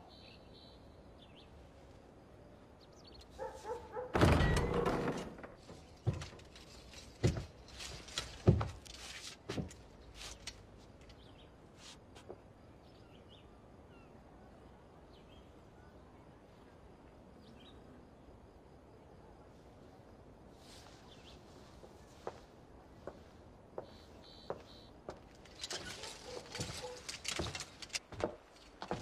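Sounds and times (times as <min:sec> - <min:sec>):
faint bird chirps: 0:00.0 - 0:01.8, 0:23.8 - 0:25.0.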